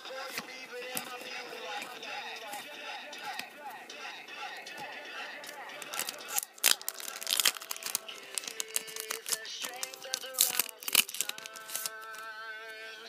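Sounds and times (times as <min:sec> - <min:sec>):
song with singing: 0:00.0 - 0:13.0
foil wrappers crinkling and tearing: 0:05.8 - 0:12.3.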